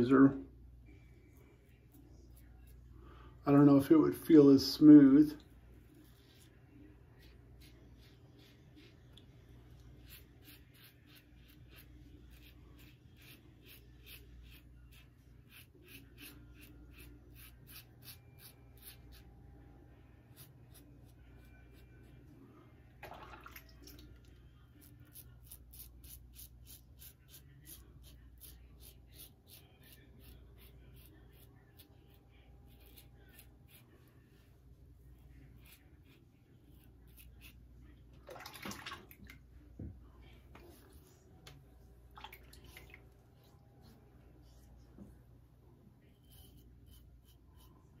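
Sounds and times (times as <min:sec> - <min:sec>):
razor scraping stubble: 0:07.1 - 0:19.4, 0:24.7 - 0:34.0.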